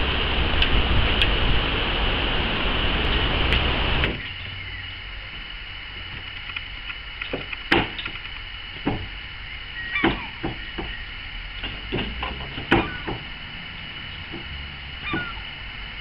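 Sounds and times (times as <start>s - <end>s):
unicycle tyre thudding on wooden boards: 7.3s - 8.2s, 8.8s - 9.2s, 10.0s - 15.5s.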